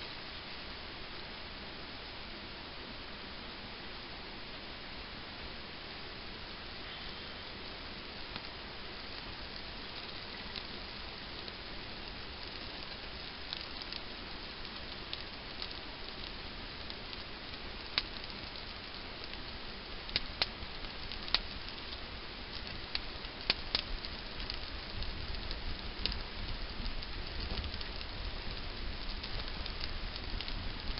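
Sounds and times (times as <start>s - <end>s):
rain hissing: 0.0s - 30.9s
small fire crackling and popping: 0.0s - 30.9s.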